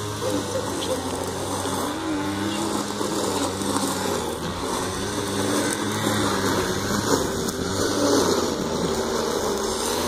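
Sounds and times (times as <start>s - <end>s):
string trimmer engine running: 0.0s - 10.0s.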